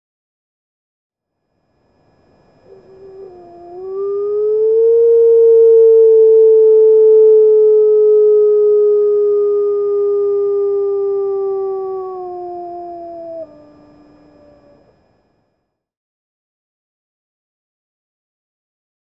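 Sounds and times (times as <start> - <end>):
wolf howling: 2.6 - 14.8.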